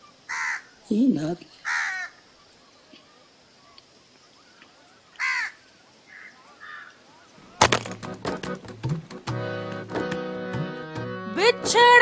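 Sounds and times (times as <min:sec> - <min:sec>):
crow cawing: 0:00.3 - 0:00.7, 0:01.6 - 0:02.2, 0:05.1 - 0:07.0.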